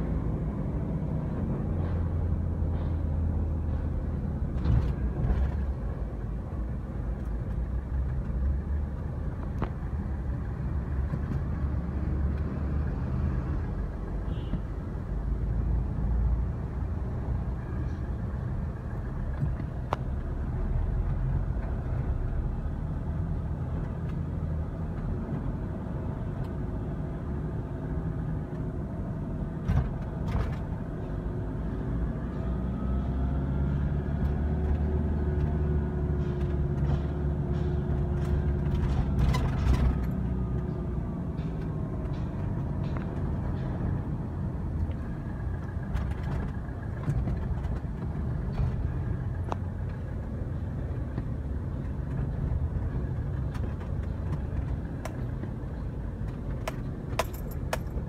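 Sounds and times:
road traffic and engine rumble: 0.0 - 58.0
sharp clicks and knocks: 41.3 - 44.0, 51.0 - 58.0.

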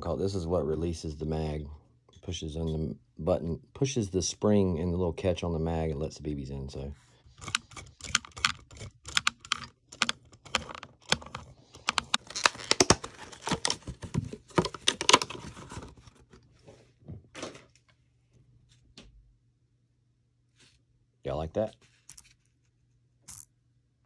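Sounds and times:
plastic parts clicking and rattling: 7.3 - 16.3.

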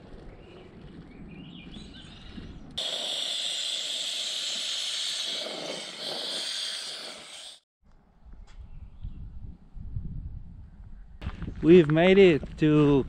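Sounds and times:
bird chirps: 0.3 - 3.0
loud steady hiss: 2.8 - 7.6.

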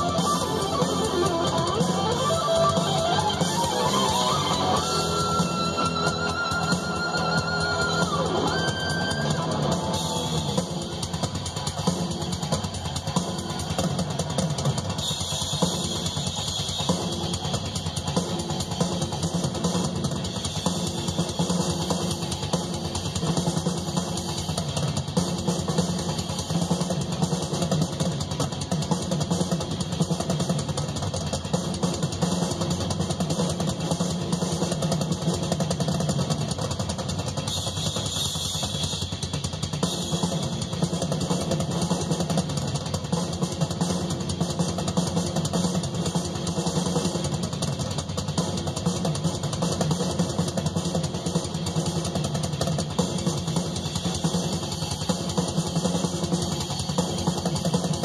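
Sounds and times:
drum kit solo: 0.0 - 58.0.

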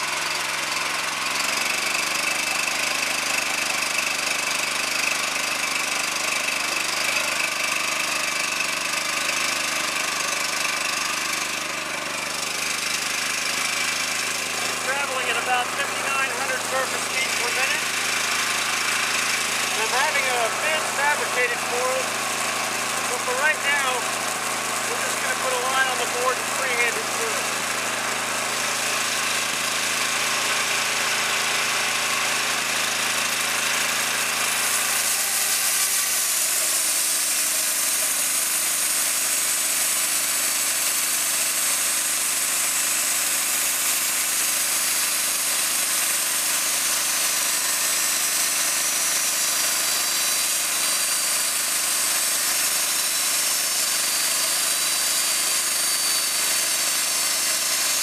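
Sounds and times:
gasoline engine running: 0.0 - 37.8
bandsaw blade cutting wood: 0.0 - 58.0.

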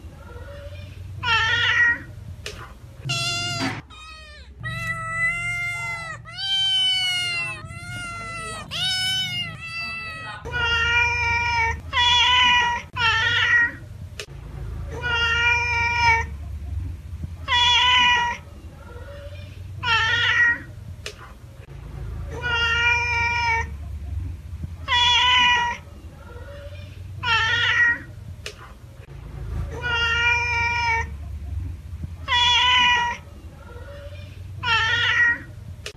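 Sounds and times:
cat meowing: 1.2 - 2.1, 3.1 - 13.8, 17.5 - 18.4, 19.8 - 20.7, 24.9 - 25.8, 26.6 - 28.1, 29.8 - 31.1, 32.2 - 33.2, 34.0 - 35.5.

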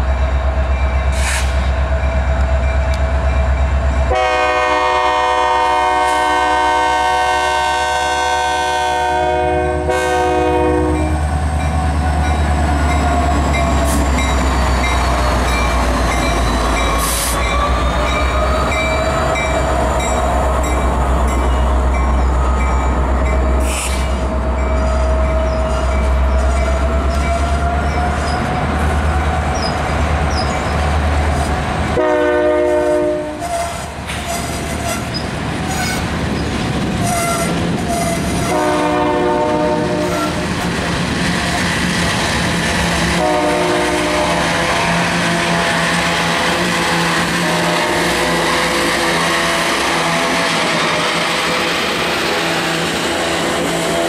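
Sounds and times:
train wheels rumbling on rail: 0.0 - 54.0
locomotive horn blasts: 4.1 - 11.1, 32.0 - 35.1, 37.0 - 40.4, 43.0 - 50.6.

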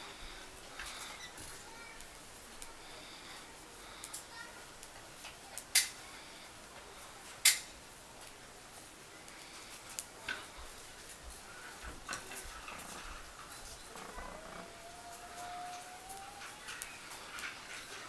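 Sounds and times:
metal knitting needles clicking: 5.6 - 6.0, 7.4 - 8.4.

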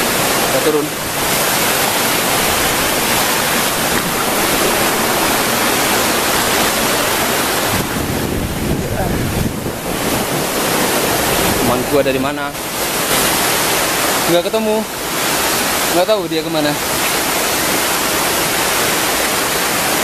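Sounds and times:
rushing water: 0.0 - 20.0
wind buffeting microphone: 1.0 - 13.6.

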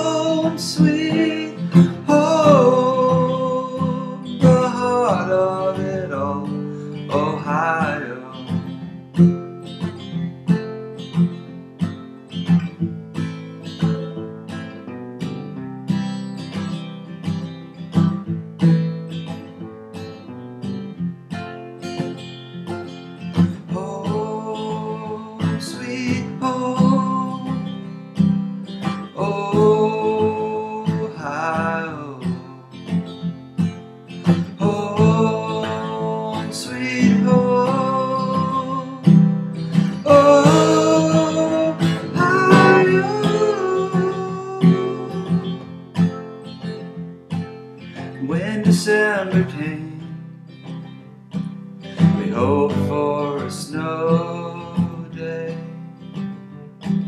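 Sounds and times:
acoustic guitar strumming: 0.0 - 57.0
wordless vocal line: 34.4 - 45.7.

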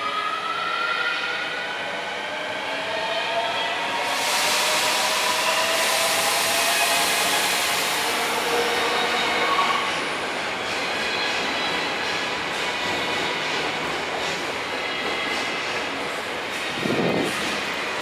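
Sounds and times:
rushing noise of train cars: 3.3 - 18.0.

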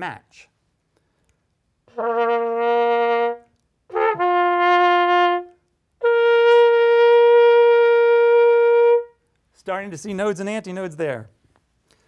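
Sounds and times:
trumpet held notes: 1.9 - 9.2.

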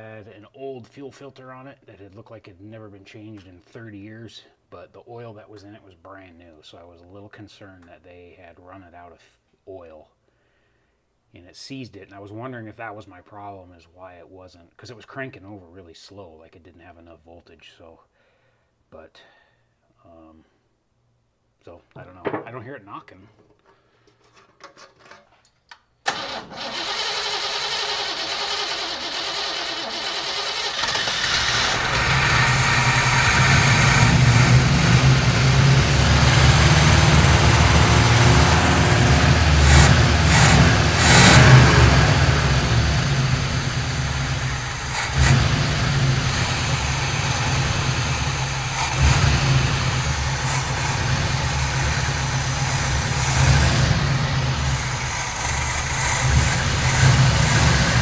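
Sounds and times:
old truck engine running: 26.2 - 58.0.

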